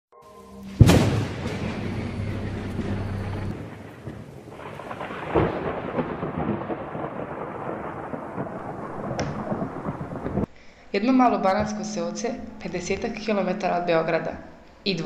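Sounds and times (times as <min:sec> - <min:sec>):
thunder cracks: 0:00.7 - 0:10.5.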